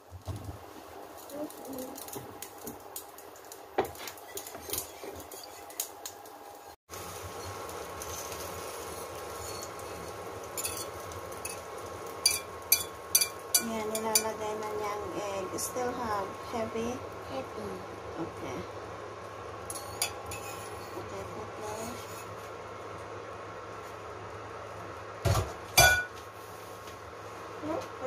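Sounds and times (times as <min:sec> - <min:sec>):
faint hum: 0:00.0 - 0:28.0
whisk beating eggs in a bowl: 0:04.4 - 0:05.9
whisk clinking against bowl: 0:10.6 - 0:11.6, 0:12.2 - 0:14.3.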